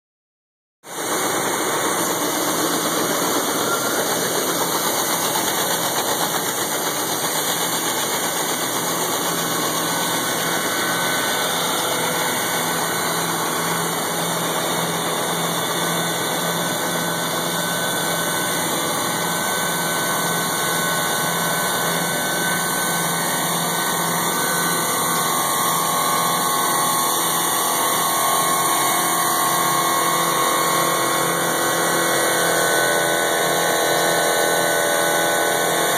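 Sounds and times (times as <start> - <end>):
engine hum: 0.9 - 26.6.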